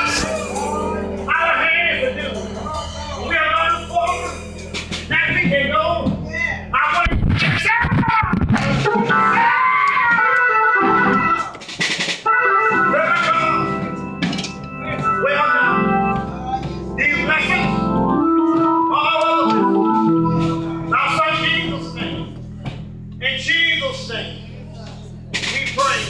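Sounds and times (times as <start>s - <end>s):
organ playing gospel chords: 0.0s - 26.0s.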